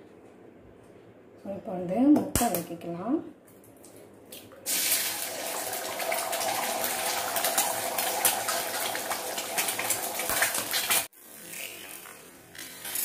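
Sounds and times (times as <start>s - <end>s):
egg frying in hot oil: 4.7s - 13.0s.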